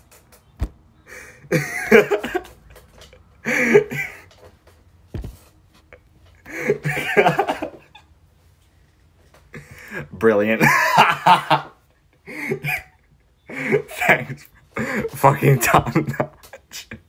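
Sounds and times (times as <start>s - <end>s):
dull thumps: 0.5s - 0.9s, 5.1s - 5.6s
man laughing hard: 1.1s - 2.6s, 3.4s - 4.3s, 6.4s - 8.1s, 10.6s - 17.0s.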